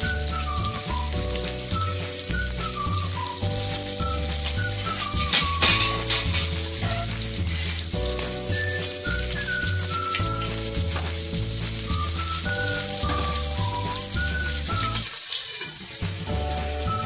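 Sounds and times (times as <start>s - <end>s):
background music with bass line: 0.0s - 15.1s, 16.0s - 17.0s
vegetables sizzling in hot oil: 0.0s - 17.0s.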